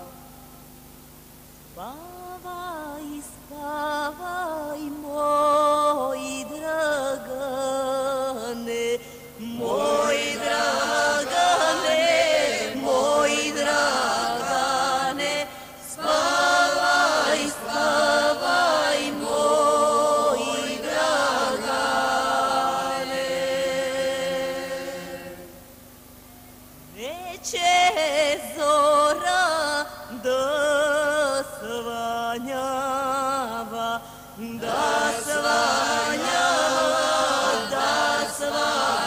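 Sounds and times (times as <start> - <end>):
woman singing folk song: 1.7 - 10.4, 26.9 - 34.6.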